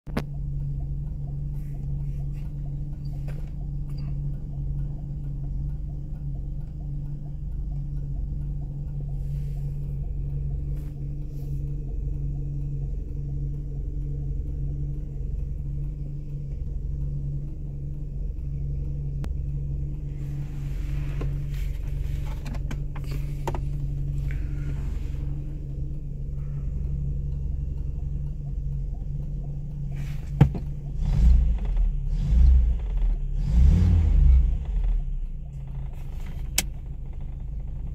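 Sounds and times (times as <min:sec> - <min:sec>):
car engine idling and revving: 0:00.0 - 0:37.9.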